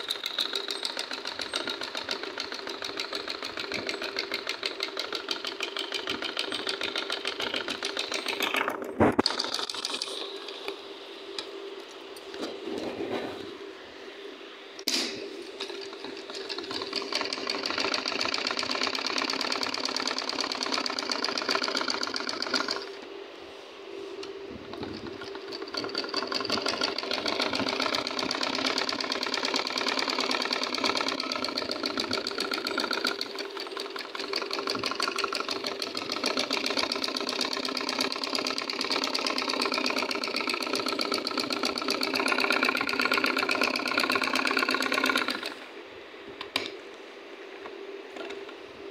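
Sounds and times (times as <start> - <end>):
sewing machine stitching: 0.0 - 10.4, 15.6 - 22.9, 24.7 - 45.6.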